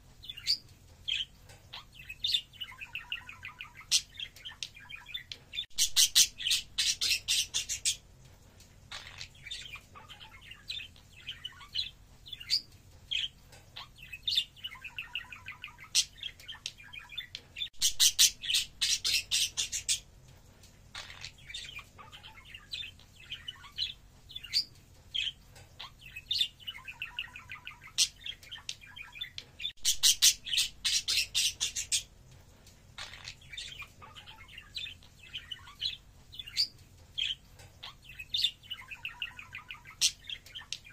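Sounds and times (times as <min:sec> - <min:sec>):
budgerigars chattering and warbling: 0:00.3 - 0:08.0, 0:08.9 - 0:20.0, 0:20.9 - 0:32.1, 0:33.0 - 0:40.9
rapid scratchy bird chatter: 0:00.3 - 0:08.1, 0:08.8 - 0:20.1, 0:20.9 - 0:32.1.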